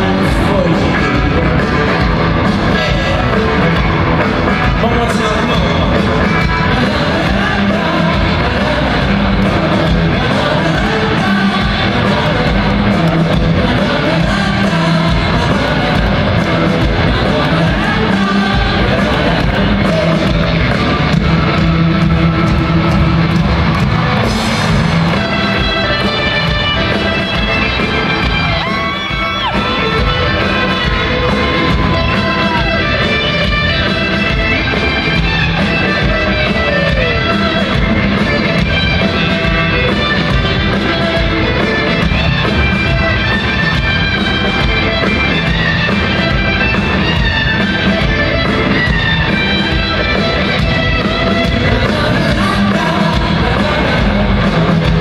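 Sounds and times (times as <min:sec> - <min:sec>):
live rock band in an arena: 0:00.0 - 0:55.0.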